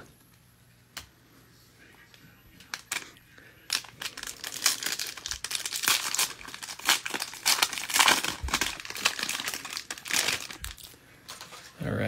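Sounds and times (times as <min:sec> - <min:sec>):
crackly rustling: 0:02.0 - 0:11.8
foil wrapper tearing and crinkling: 0:02.6 - 0:11.0.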